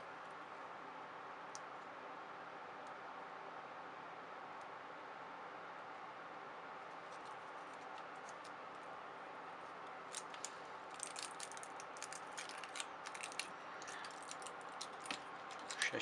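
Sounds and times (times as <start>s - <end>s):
aluminium foil crinkling: 10.1s - 16.0s.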